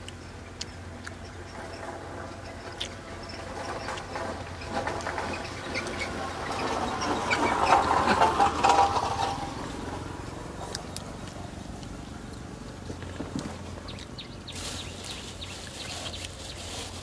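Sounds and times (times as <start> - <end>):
person chewing food: 0.0 - 1.7, 2.7 - 3.0, 10.6 - 14.2.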